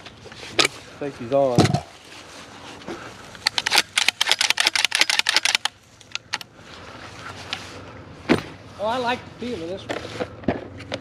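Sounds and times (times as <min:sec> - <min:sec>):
rapid clatter of sharp clicks: 0:03.4 - 0:06.4.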